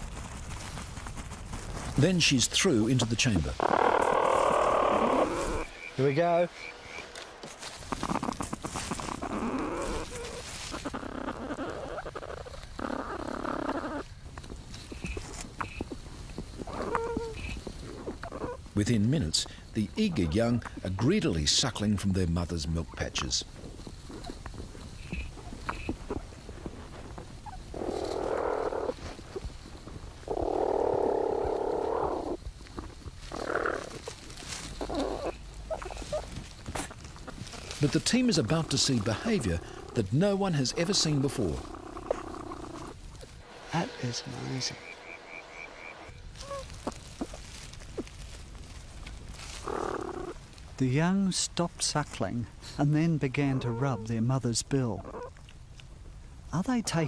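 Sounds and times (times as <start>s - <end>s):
animals scuffling and scratching: 0.0s - 5.8s, 6.9s - 18.7s, 31.5s - 44.7s, 46.2s - 50.8s
platypus raspy calls: 2.9s - 14.1s, 16.6s - 18.7s, 25.0s - 26.2s, 27.4s - 29.1s, 30.2s - 48.2s, 49.4s - 50.5s
rasping noise: 37.5s - 48.1s.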